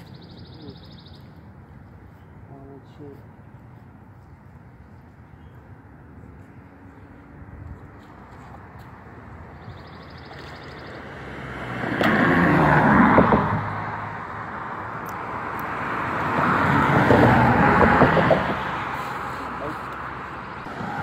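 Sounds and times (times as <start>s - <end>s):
cars passing by: 0.0s - 21.0s.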